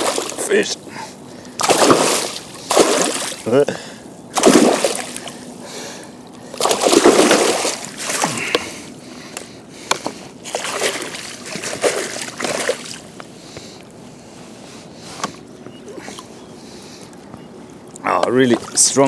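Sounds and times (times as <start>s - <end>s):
water splashing from thrashing fish: 0.0s - 0.6s, 1.4s - 3.5s, 4.3s - 5.5s, 6.5s - 8.6s, 10.4s - 13.1s.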